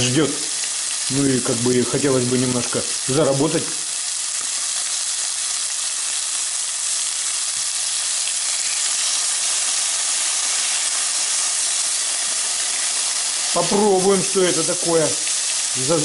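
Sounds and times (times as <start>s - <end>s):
pork fat sizzling in a pan: 0.0s - 16.0s.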